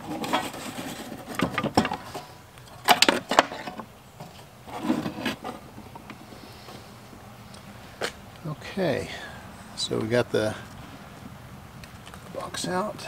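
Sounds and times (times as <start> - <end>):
knocks and clicks of wood and metal: 1.2 - 2.2.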